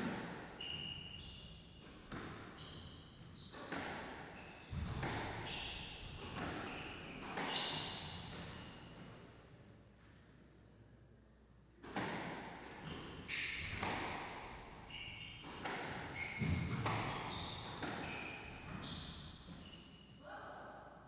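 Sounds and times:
shoes squeaking on wooden floor: 0:00.6 - 0:08.9, 0:12.8 - 0:20.0
squash ball hits: 0:03.6 - 0:08.6, 0:11.8 - 0:14.5, 0:15.4 - 0:18.9.

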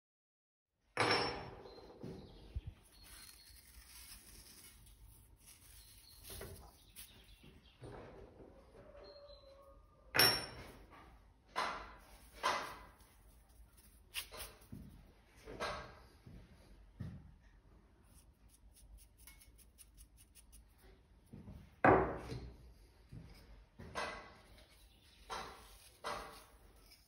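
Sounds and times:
dried herbs rustling: 0:02.5 - 0:07.7, 0:12.0 - 0:15.0, 0:18.1 - 0:21.0.

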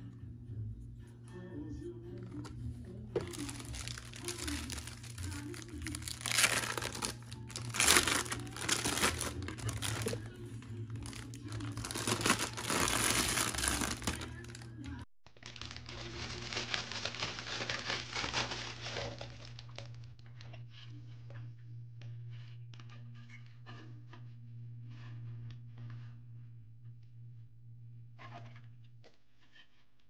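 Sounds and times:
plastic wrap crinkling: 0:03.2 - 0:20.2.

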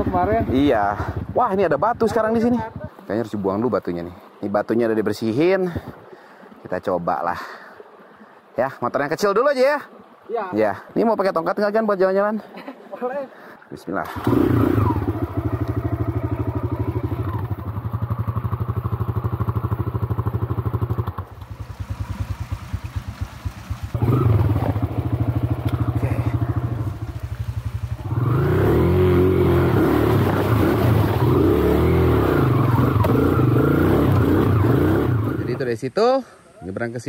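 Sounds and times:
motorcycle engine revving: 0:00.0 - 0:01.5, 0:14.0 - 0:35.6.

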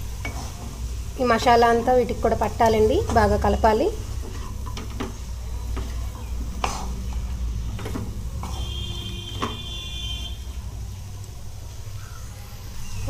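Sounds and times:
spatula scraping a pan: 0:04.0 - 0:09.8.

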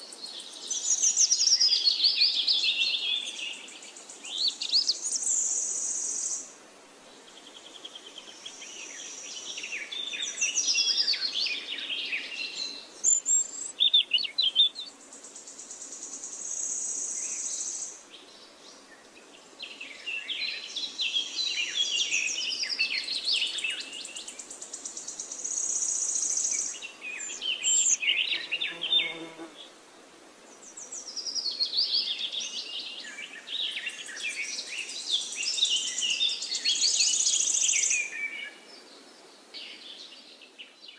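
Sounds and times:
birds chirping and trilling: 0:20.1 - 0:29.5.

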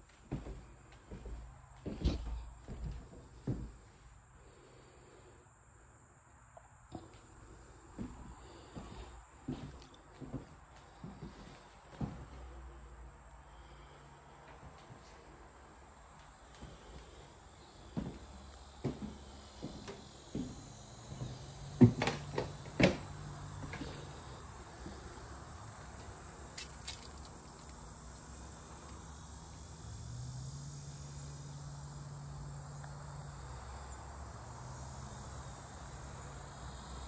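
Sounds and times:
crickets chirring: 0:00.0 - 0:37.0
footsteps on wooden floorboards: 0:00.2 - 0:03.8, 0:08.0 - 0:12.4, 0:18.0 - 0:23.0.

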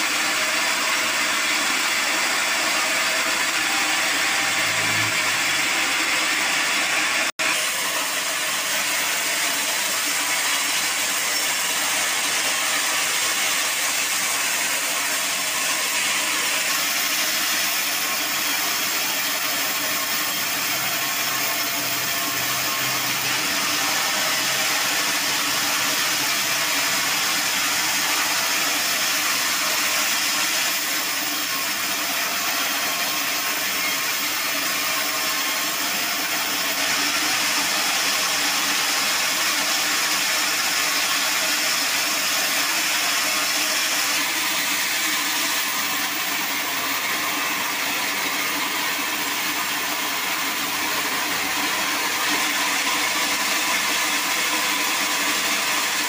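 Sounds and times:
band saw cutting log: 0:00.0 - 0:56.0.

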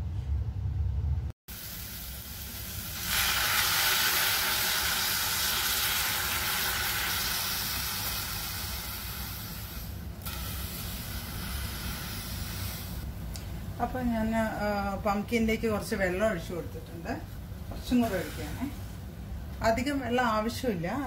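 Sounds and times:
pot hissing on gas stove: 0:01.5 - 0:13.1.

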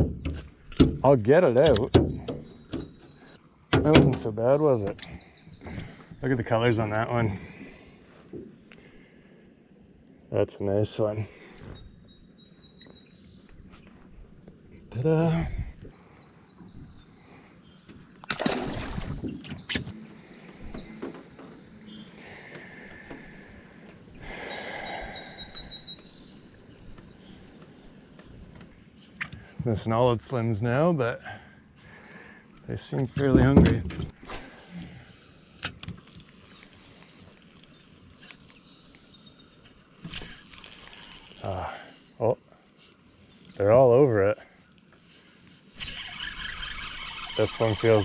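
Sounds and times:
sharp knocks on aluminium boat: 0:00.0 - 0:03.0
faint outdoor ambience on water: 0:00.0 - 0:48.0
songbirds chirping: 0:00.0 - 0:48.0
fish splashing into water: 0:18.2 - 0:19.3.

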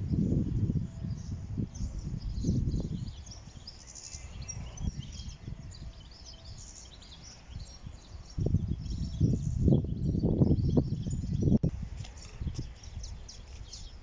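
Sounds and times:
small birds chirping: 0:00.0 - 0:14.0
wind buffeting microphone: 0:00.0 - 0:14.0.

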